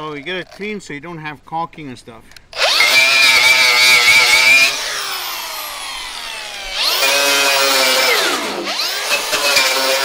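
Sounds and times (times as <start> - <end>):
angle grinder wire brush on metal: 2.6 - 10.0.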